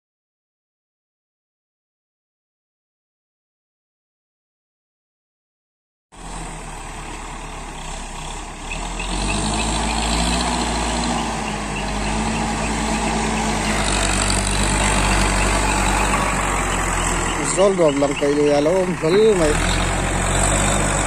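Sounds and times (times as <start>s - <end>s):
diesel engine running: 6.2s - 21.0s.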